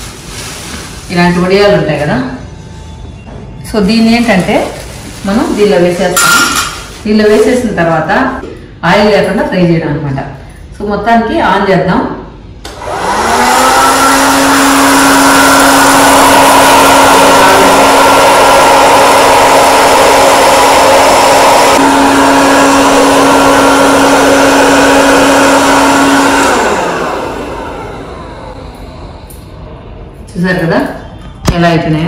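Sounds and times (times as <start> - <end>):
fan motor humming: 12.6 - 30.4.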